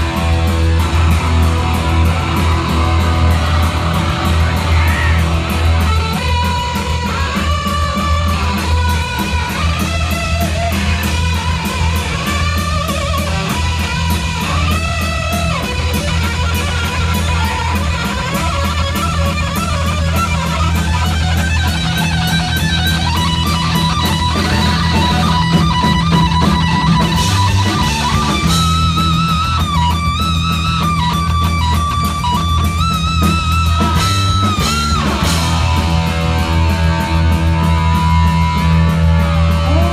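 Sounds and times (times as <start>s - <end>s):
low bass drone: 0.0s - 6.0s
distorted electric guitar solo: 0.0s - 39.9s
heavy metal band playing live: 0.0s - 39.9s.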